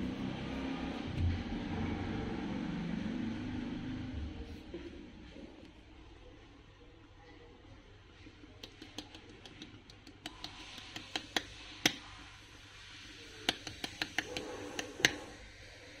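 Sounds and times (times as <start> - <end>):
sharp clicks and taps: 8.6 - 12.0, 13.5 - 15.3.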